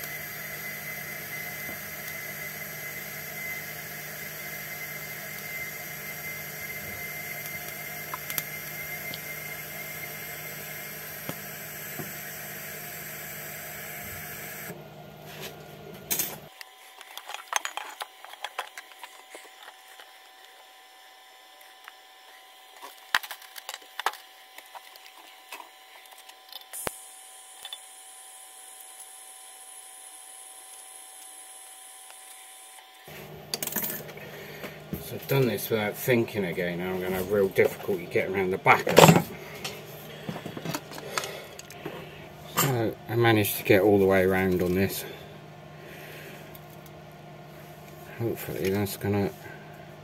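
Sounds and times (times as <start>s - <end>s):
welding arc buzzing: 0.0s - 46.9s
metal parts clicking and knocking: 17.0s - 19.8s.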